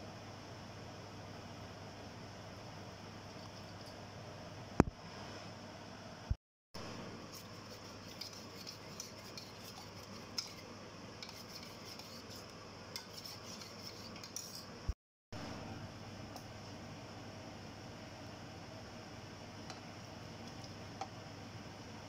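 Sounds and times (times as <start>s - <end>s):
metal spoon scraping a cup: 7.4s - 14.7s.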